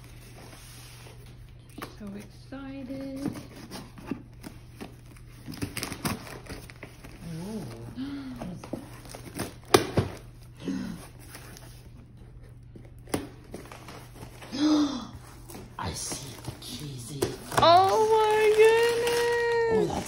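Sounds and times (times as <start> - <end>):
cardboard rustling and scraping: 2.9 - 7.8
scissors cutting packing tape: 5.4 - 6.8.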